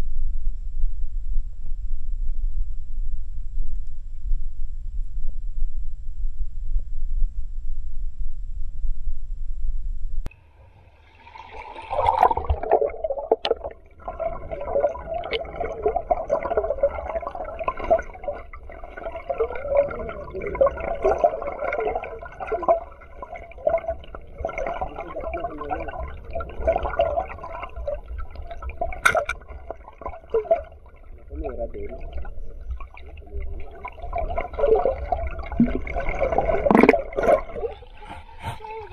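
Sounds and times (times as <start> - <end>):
underwater stream gurgling: 10.3 - 38.9.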